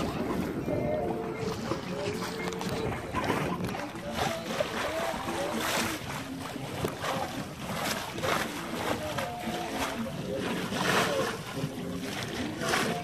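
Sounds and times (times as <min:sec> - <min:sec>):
wind noise: 0:00.0 - 0:08.4
water splashing along hull: 0:00.0 - 0:13.0.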